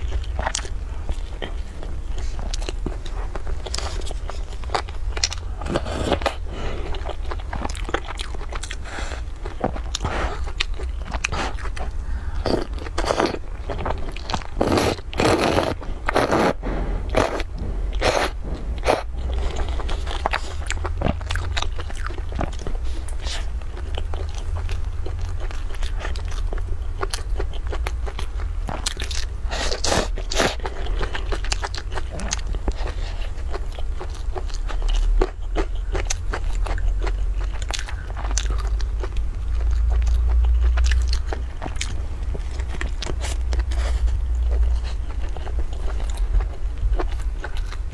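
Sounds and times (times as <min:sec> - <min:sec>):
steady low hum: 0:00.0 - 0:47.9
wet chewing: 0:00.0 - 0:47.9
noodles slurped: 0:14.5 - 0:20.9.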